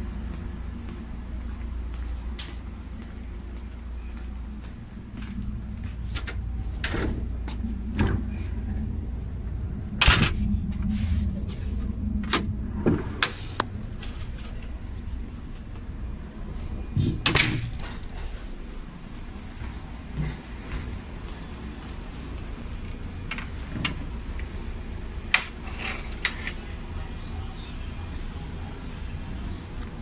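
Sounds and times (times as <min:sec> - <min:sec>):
low hum of train: 0:00.0 - 0:30.0
footsteps on train floor: 0:00.2 - 0:08.5, 0:18.2 - 0:22.6.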